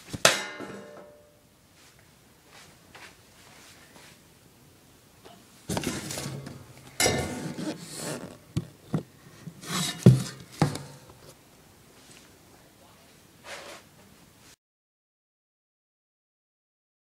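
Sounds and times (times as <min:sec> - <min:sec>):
cardboard rustling and scraping: 0:05.7 - 0:11.4.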